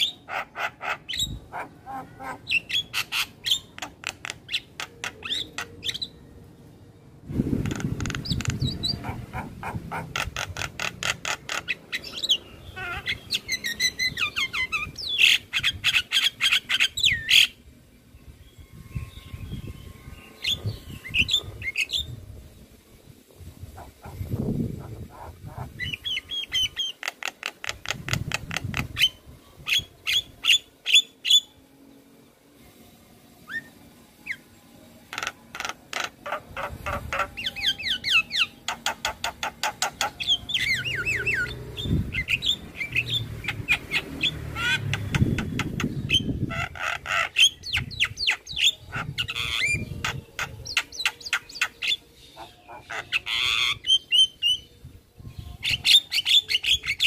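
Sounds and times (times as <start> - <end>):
bird singing sharp notes and whistles: 11.1 - 22.2, 36.8 - 46.5, 47.2 - 57.0.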